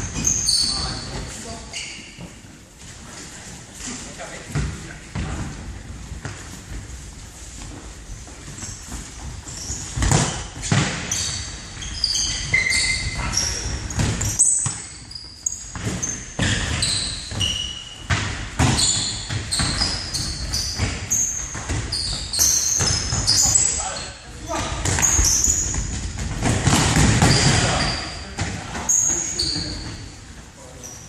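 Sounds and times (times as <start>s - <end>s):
sneakers squeaking on floor: 0.0s - 3.2s, 3.8s - 31.0s
ball kicked and bouncing: 10.0s - 11.4s, 18.1s - 21.9s, 24.8s - 27.8s.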